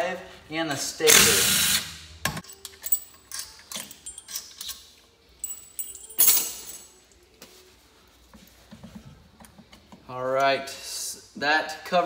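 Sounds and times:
metal bolts and tools clinking: 2.3s - 7.1s.

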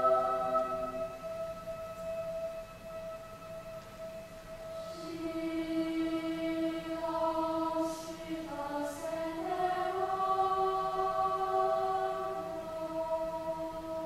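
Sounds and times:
children's choir singing: 0.0s - 1.8s, 4.7s - 14.0s.

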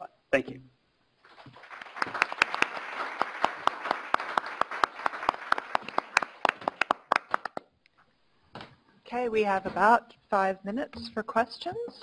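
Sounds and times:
audience applauding: 1.3s - 7.7s.

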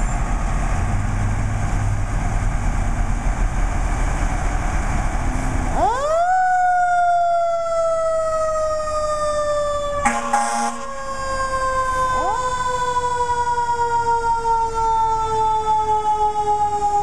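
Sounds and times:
fire engine siren wailing: 5.1s - 17.0s
short horn blast: 10.0s - 10.8s.

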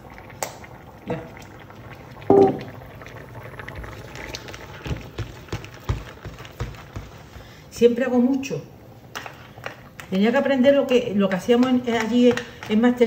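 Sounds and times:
sauce simmering and bubbling: 0.0s - 7.7s.

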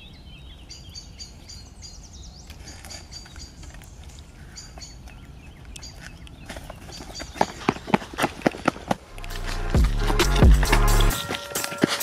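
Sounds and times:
small birds chirping: 0.0s - 8.8s.

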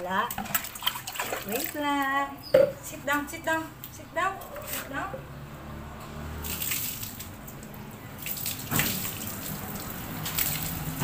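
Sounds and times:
water running and splashing: 0.0s - 1.9s, 6.4s - 11.0s.

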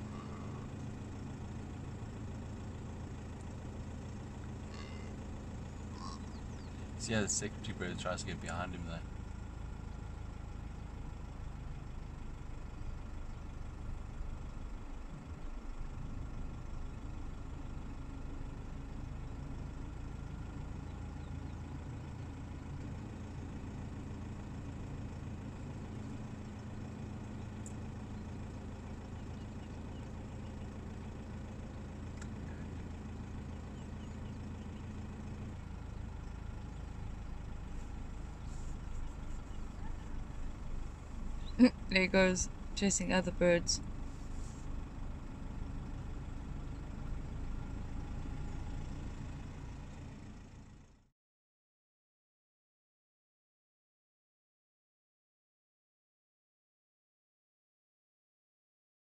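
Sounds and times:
car engine idling: 0.0s - 51.1s.

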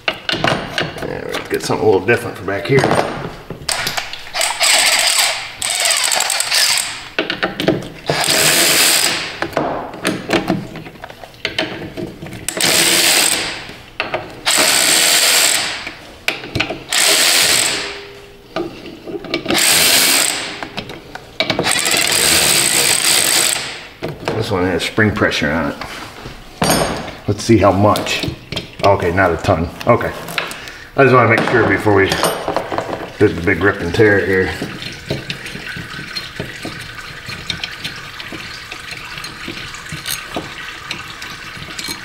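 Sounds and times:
power driver spinning bolts: 3.7s - 9.5s, 11.5s - 18.0s, 19.2s - 23.8s, 32.2s - 42.0s.

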